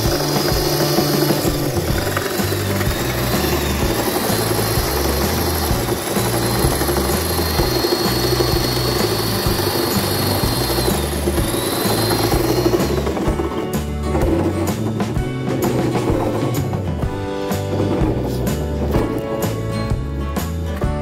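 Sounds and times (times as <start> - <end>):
electric hand drill whine: 0.0 - 16.8
background music: 0.0 - 21.0.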